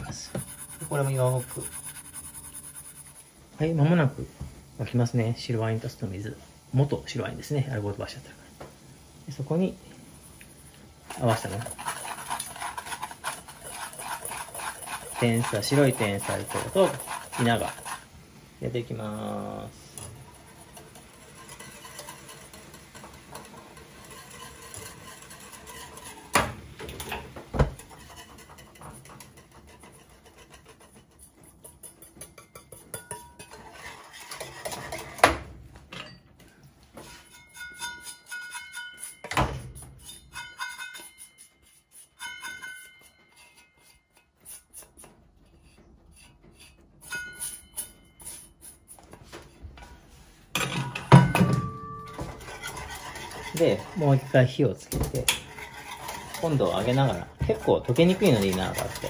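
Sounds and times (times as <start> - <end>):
whisk rattling in saucepan: 0.0 - 3.3, 11.0 - 18.1, 18.7 - 35.3, 37.4 - 39.2, 51.2 - 59.0
gas burner hissing: 0.0 - 30.2.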